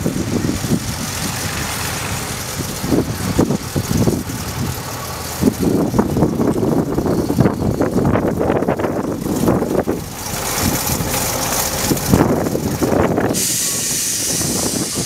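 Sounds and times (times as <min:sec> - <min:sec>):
diesel locomotive engine: 0:00.0 - 0:15.0.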